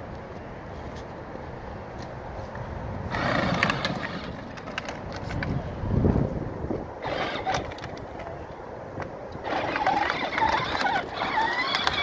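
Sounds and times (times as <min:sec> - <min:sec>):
plastic wheels rattling on concrete: 0:03.1 - 0:05.5, 0:07.0 - 0:08.3, 0:09.4 - 0:12.0
electric motor whine: 0:09.4 - 0:12.0.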